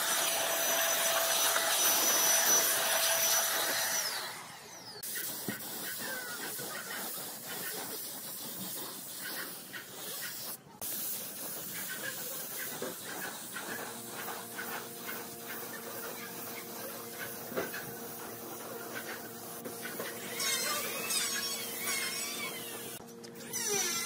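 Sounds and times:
spray gun hissing: 0.0 - 4.3, 5.0 - 23.0.

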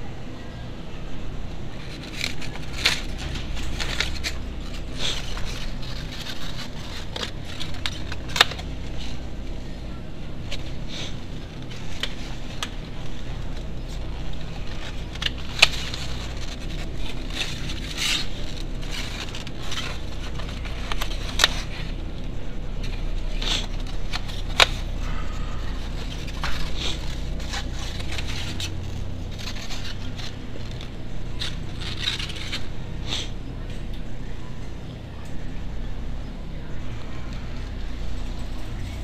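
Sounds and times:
steady low hum: 0.0 - 39.0
egg cartons clicking and scraping: 1.7 - 9.6, 10.4 - 33.4.

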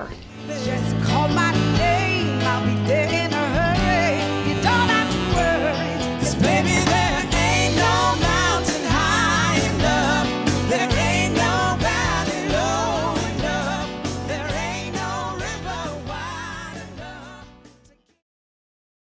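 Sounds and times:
soul band playing: 0.0 - 17.9
person singing lead vocals: 0.3 - 18.2
steady drum beat: 5.1 - 17.4.

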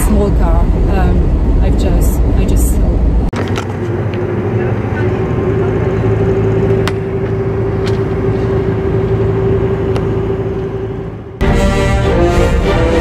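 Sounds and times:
engine and road noise in cab: 0.0 - 11.4
music: 11.4 - 13.0.

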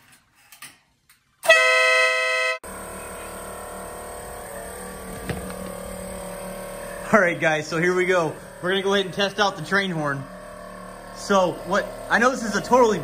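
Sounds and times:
mechanical hum: 0.0 - 13.0
horn blast: 1.4 - 3.4.

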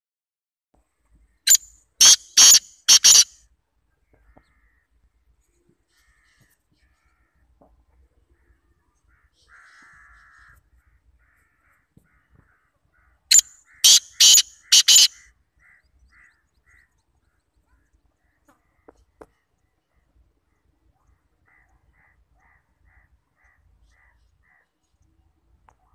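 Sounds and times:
bird harsh grating call: 1.5 - 3.4, 13.3 - 16.9.

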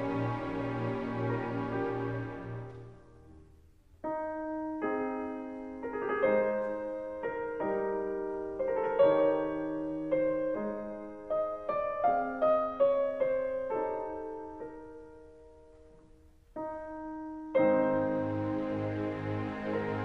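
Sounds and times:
slow solo piano melody: 4.0 - 19.0.

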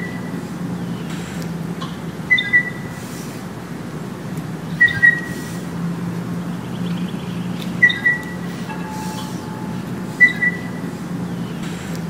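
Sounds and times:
birds: 0.0 - 12.0
chimes: 7.9 - 10.9.

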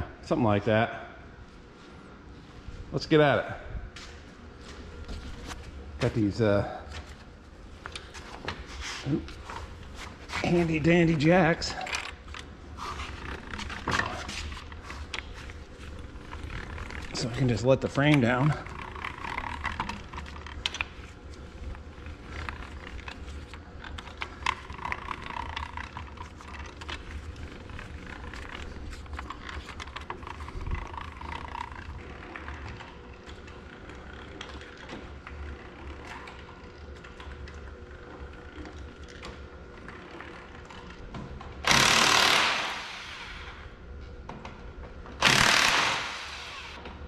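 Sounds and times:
hand-cranked jack clicking: 41.6 - 42.8, 45.2 - 46.7
power tool running: 41.6 - 43.6, 45.2 - 46.8.

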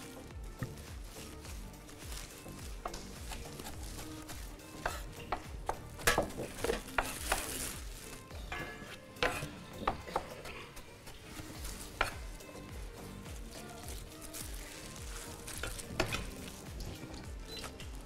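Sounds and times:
soft background music: 0.0 - 18.0
utensils scraping a pan: 2.4 - 12.5, 13.6 - 17.8.

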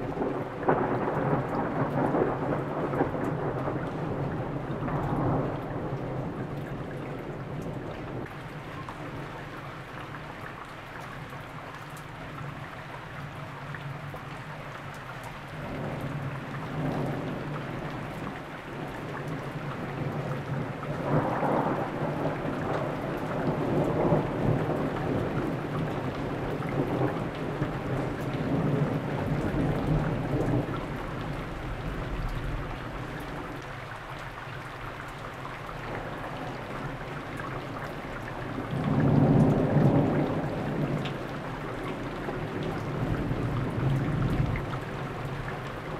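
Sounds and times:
rolling thunder: 0.0 - 8.2, 19.6 - 33.6, 37.6 - 45.9
steady rain: 0.0 - 45.9.

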